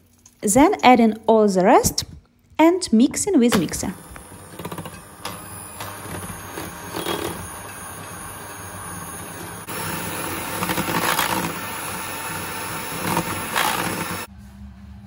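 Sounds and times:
electric mixer whisking: 0:03.5 - 0:14.3.

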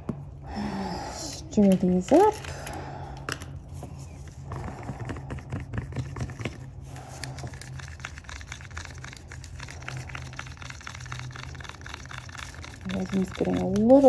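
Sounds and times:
steady low hum: 0:00.0 - 0:14.0
stir stick scraping plastic cup: 0:04.4 - 0:14.0.

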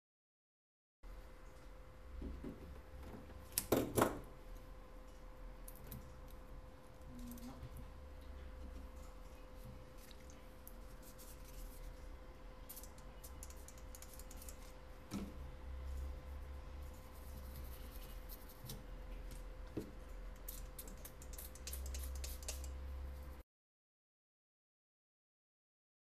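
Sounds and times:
low electrical hum: 0:01.0 - 0:23.4
brush scrubbing circuit board: 0:16.0 - 0:18.8, 0:20.3 - 0:23.4.

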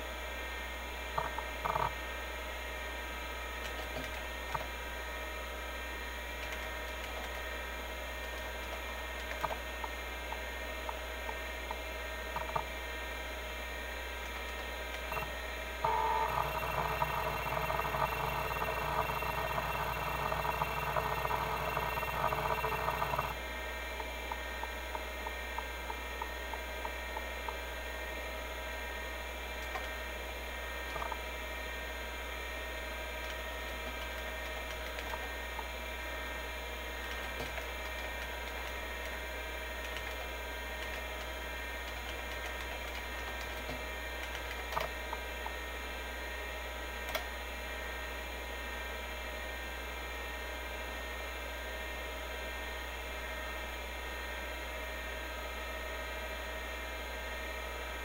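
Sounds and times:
hard drive spindle whir: 0:00.0 - 0:58.0
hard drive seek ticks: 0:01.1 - 0:02.1, 0:03.6 - 0:04.9, 0:06.2 - 0:13.2, 0:14.1 - 0:28.0, 0:29.4 - 0:31.4, 0:32.8 - 0:35.9, 0:36.8 - 0:45.6.

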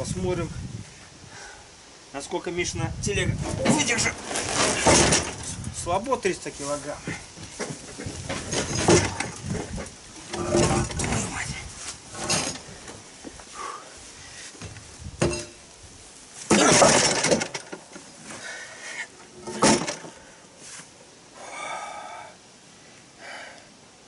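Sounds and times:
concrete slab scraping: 0:03.5 - 0:05.4.

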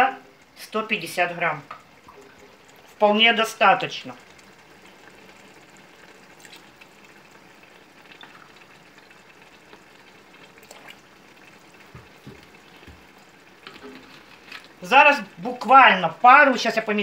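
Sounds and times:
sauce bubbling in pot: 0:00.0 - 0:17.0
liquid trickling into glass: 0:04.1 - 0:14.8.

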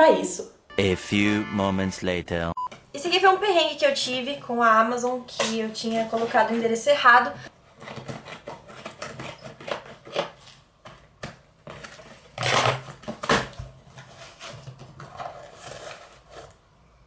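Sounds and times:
cardboard package rustling: 0:07.6 - 0:16.6
cardboard ripping: 0:11.7 - 0:16.6.

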